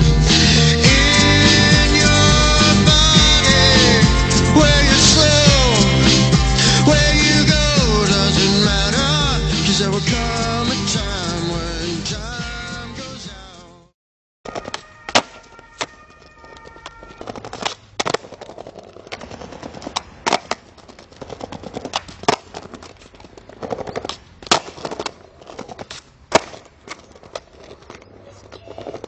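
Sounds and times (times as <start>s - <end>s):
skateboard rolling over paving: 14.5s - 29.0s
skateboard tail popping cracks: 14.5s - 29.0s
skateboard slapping down on landing: 17.2s - 22.9s, 23.6s - 27.7s.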